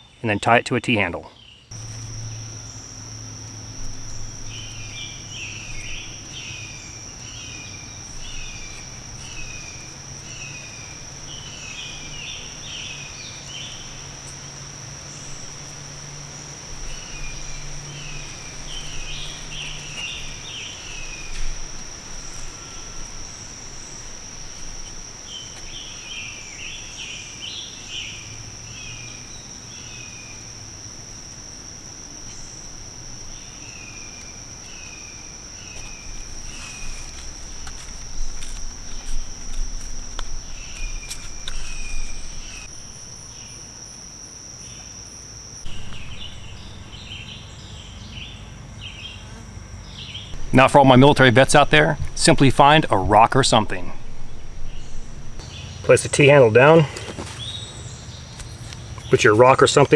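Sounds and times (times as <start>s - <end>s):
bird singing repeated notes: 0.0s - 14.2s, 15.0s - 30.5s, 45.6s - 49.2s
crickets droning: 0.0s - 59.9s
faint low hum: 0.3s - 59.9s.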